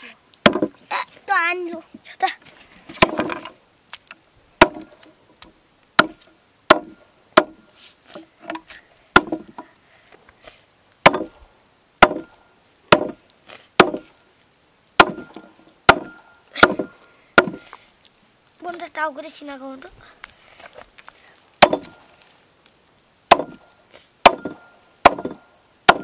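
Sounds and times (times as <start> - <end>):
blade chopping onto wood: 0.4 - 0.8, 3.0 - 3.5, 4.6 - 5.0, 6.0 - 7.6, 9.2 - 9.6, 11.0 - 11.4, 12.0 - 13.2, 13.8 - 14.1, 15.0 - 17.6, 21.6 - 22.0, 23.3 - 23.6, 24.2 - 26.0.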